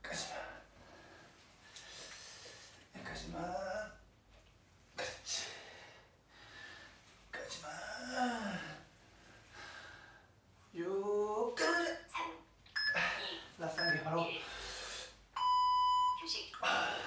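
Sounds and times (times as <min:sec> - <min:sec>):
man groaning: 0:07.6 - 0:08.8
man breathing hard: 0:09.4 - 0:10.4.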